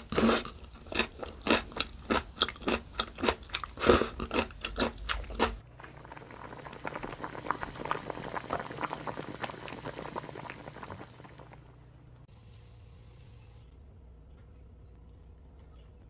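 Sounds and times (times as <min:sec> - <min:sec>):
chewing noodles: 0:00.0 - 0:11.5
stew bubbling in pot: 0:00.0 - 0:11.7.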